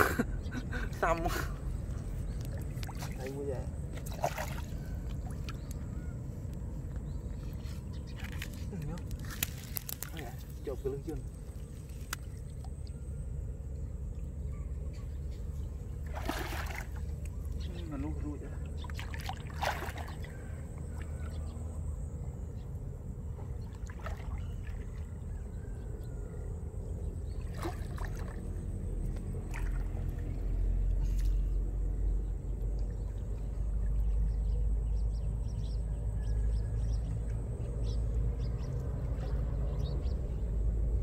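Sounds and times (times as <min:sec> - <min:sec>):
low steady rumble: 0:00.0 - 0:41.0
net splashing and dripping water: 0:02.5 - 0:05.8, 0:08.2 - 0:10.4, 0:16.0 - 0:17.4, 0:18.0 - 0:21.2, 0:23.7 - 0:25.0, 0:27.4 - 0:31.3.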